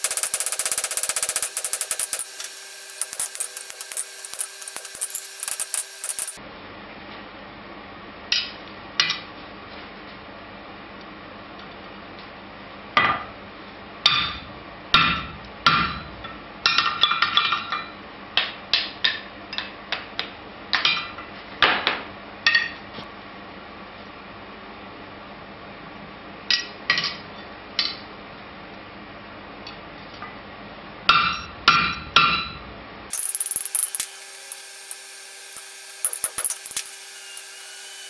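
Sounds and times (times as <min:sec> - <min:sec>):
rapid-fire metal strikes: 0:00.0 - 0:06.4.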